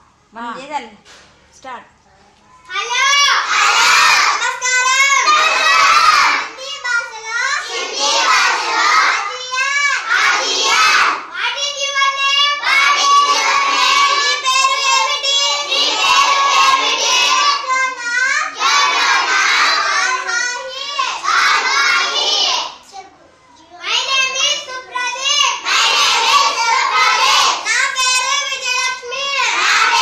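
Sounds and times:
children chanting together: 3.1 - 6.6, 7.5 - 11.3, 12.1 - 22.9, 25.1 - 30.0.

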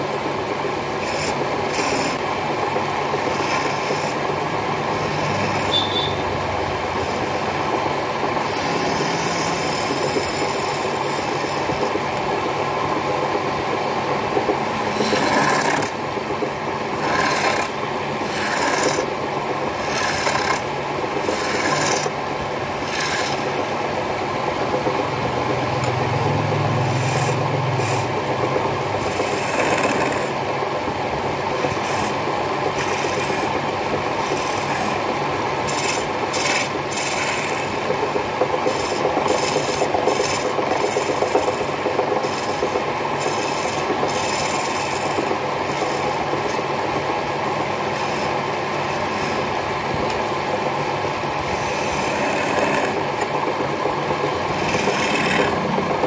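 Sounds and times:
lathe chisel scraping wood: 0.9 - 2.3, 3.1 - 6.2, 8.4 - 12.0, 14.8 - 16.1, 17.0 - 19.1, 19.7 - 22.2, 22.8 - 23.7, 26.6 - 28.2, 29.0 - 30.4, 31.5 - 46.7, 47.8 - 50.2, 51.4 - 53.1, 54.5 - 55.6.

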